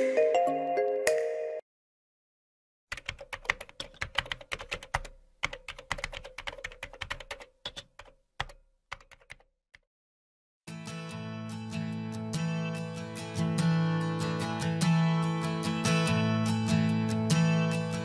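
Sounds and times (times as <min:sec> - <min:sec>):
music: 0:00.0 - 0:01.6, 0:10.7 - 0:18.0
keyboard typing: 0:02.9 - 0:09.5.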